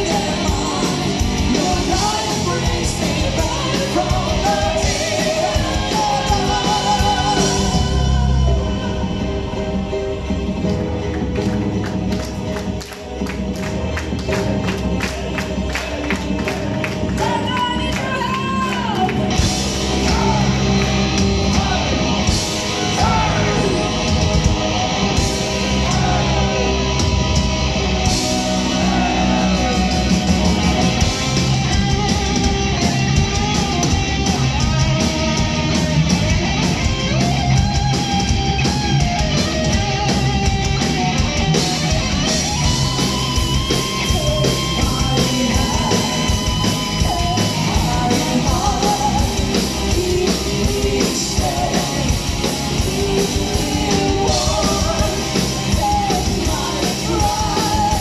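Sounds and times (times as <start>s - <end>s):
sung vocals: 0.0s - 10.0s, 21.4s - 24.0s, 44.0s - 58.0s
distorted electric guitars: 0.0s - 58.0s
drums: 0.0s - 58.0s.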